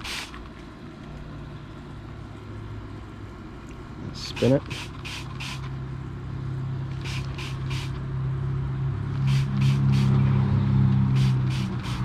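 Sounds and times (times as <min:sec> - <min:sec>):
spray bottle squirting: 0:00.0 - 0:00.4, 0:04.3 - 0:05.7, 0:07.0 - 0:08.0, 0:09.2 - 0:10.2, 0:11.1 - 0:12.0.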